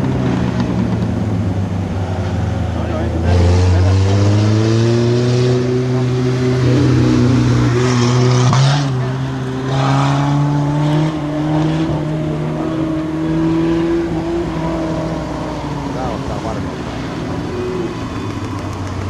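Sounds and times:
race car engines running hard: 0:00.0 - 0:19.0.

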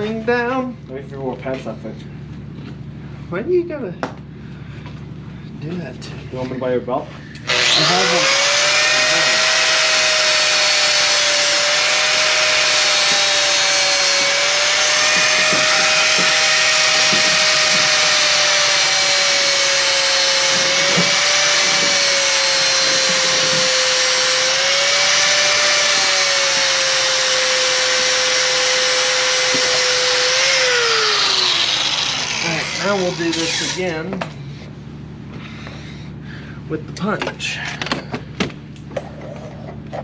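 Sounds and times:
angle grinder grinding steel: 0:07.4 - 0:34.2.

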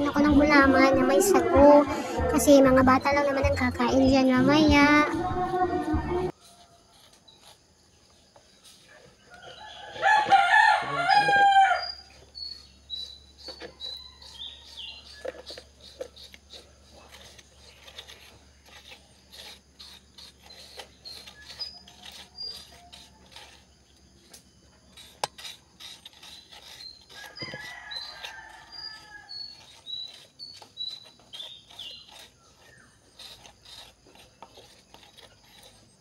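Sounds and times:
bird chirps: 0:11.2 - 0:16.3, 0:19.8 - 0:23.1
metal spoon scraping coconut shell: 0:11.3 - 0:36.0.

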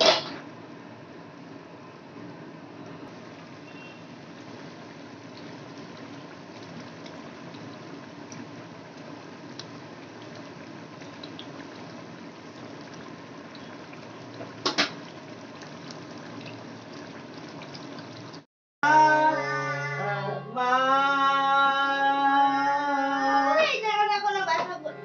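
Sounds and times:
curry bubbling in a pan: 0:03.1 - 0:18.5.

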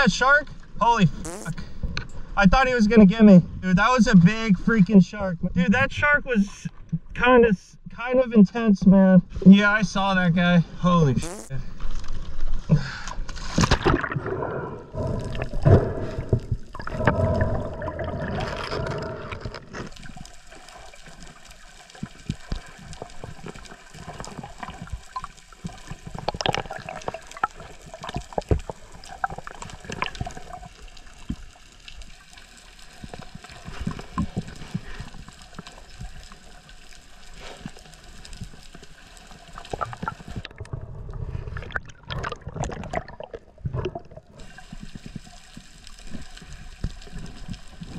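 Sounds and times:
underwater water noise: 0:10.9 - 0:47.9
small sharp clicks and crackles: 0:18.4 - 0:40.8, 0:43.8 - 0:47.9.

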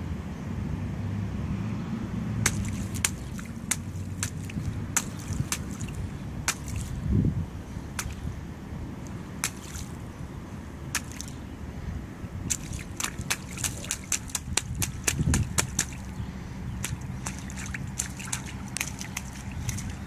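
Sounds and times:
footsteps splashing in puddle: 0:02.4 - 0:07.0, 0:07.9 - 0:08.3, 0:09.4 - 0:10.0, 0:10.9 - 0:11.4, 0:12.4 - 0:20.0.

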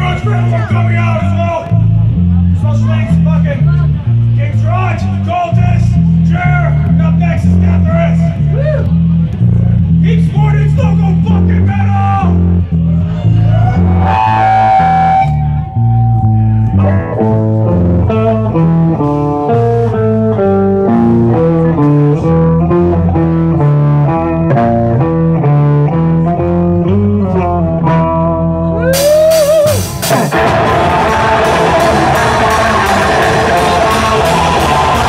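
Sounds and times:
electric guitar riff: 0:13.5 - 0:35.0
guitar note bending: 0:13.5 - 0:35.0
metal band playing loud: 0:28.9 - 0:35.0.

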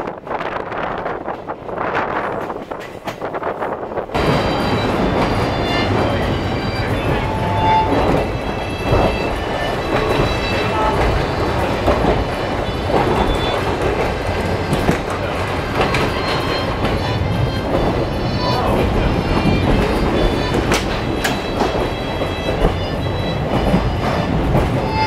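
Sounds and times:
train running gear rumble: 0:00.0 - 0:25.0
wheel clicks over rail joints: 0:04.1 - 0:25.0.

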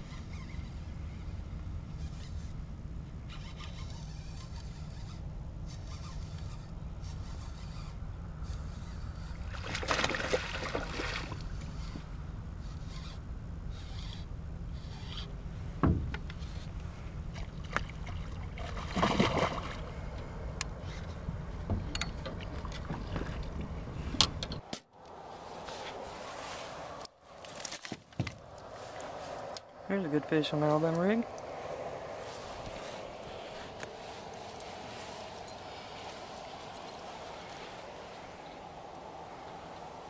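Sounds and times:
steady low hum: 0:00.0 - 0:27.4
fish splashing at water surface: 0:17.4 - 0:19.9.

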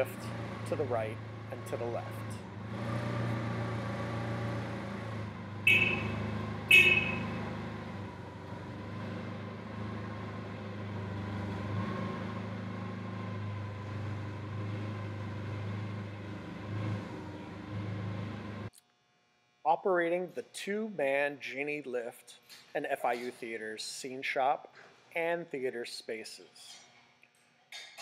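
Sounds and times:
forklift engine running: 0:00.0 - 0:18.7
horn honks: 0:05.6 - 0:07.4.

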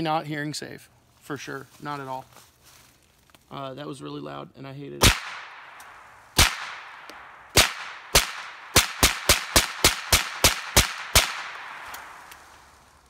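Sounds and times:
suppressed pistol shots: 0:05.0 - 0:12.5.

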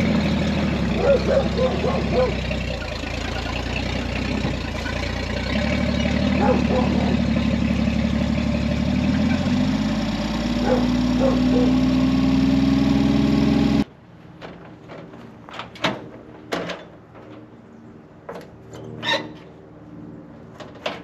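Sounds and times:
truck engine running: 0:00.0 - 0:13.9.

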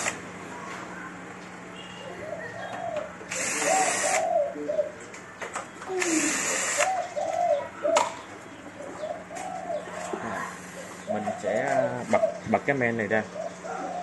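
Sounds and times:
pigeons cooing: 0:01.9 - 0:14.0
cordless drill running: 0:03.3 - 0:04.2, 0:06.0 - 0:06.9.

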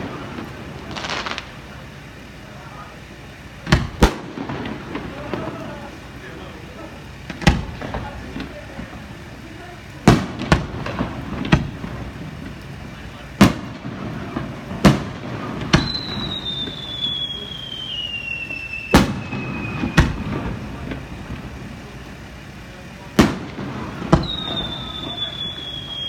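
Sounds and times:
fireworks bangs with echo: 0:00.0 - 0:26.0
falling firework whistle: 0:13.4 - 0:21.6, 0:23.2 - 0:26.0.

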